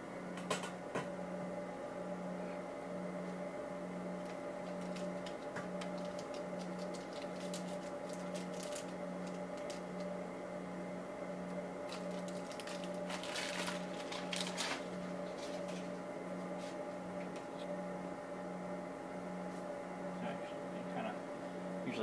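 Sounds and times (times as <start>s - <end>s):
equipment room hum: 0.0s - 22.0s.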